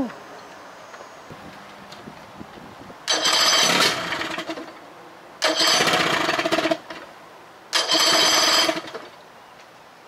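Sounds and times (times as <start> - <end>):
outboard motor cranking: 3.1 - 4.8, 5.4 - 7.0, 7.7 - 9.1.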